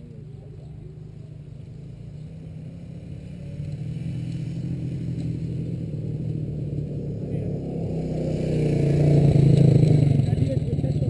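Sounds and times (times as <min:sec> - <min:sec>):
off-road motorcycle engines: 0:00.0 - 0:11.0.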